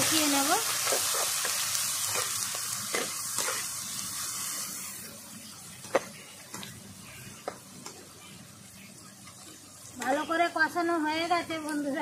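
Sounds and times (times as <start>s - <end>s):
onions sizzling in hot oil: 0.0s - 12.0s.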